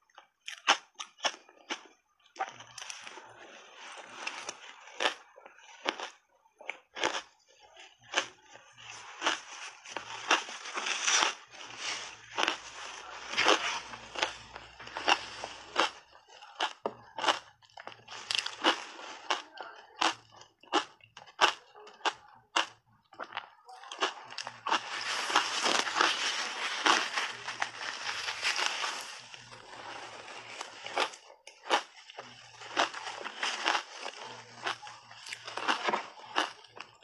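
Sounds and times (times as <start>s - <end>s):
shaved ice crunching while chewed: 0.0s - 37.0s.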